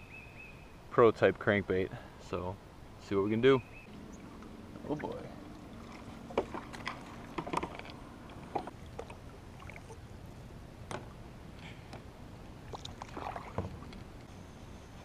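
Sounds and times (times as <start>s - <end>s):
paddle splashing in water: 3.9s - 10.0s, 12.6s - 14.0s
knocks and scrapes against kayak: 5.9s - 9.1s.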